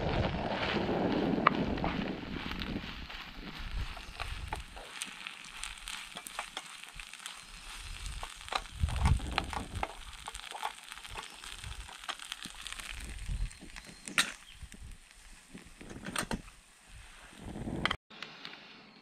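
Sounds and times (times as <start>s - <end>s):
light sizzle from pan: 2.4s - 17.4s.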